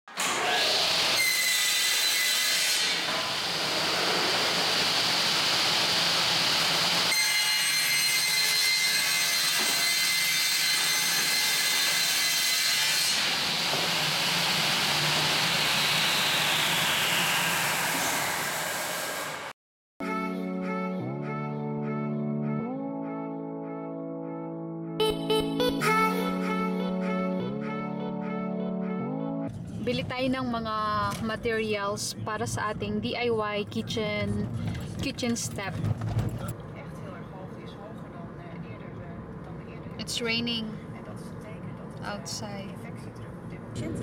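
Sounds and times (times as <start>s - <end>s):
panel saw cutting board: 0.1s - 19.5s
saw blade high whine: 0.2s - 19.5s.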